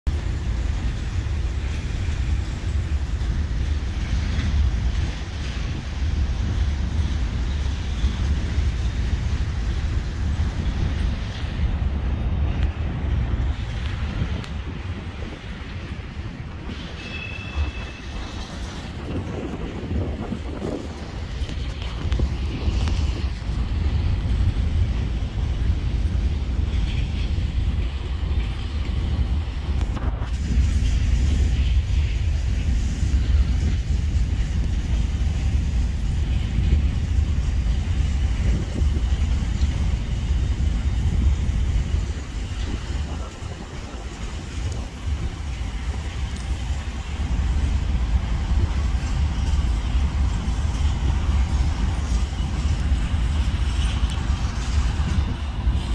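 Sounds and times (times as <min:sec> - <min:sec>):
diesel locomotives rumbling: 0:00.0 - 0:55.9.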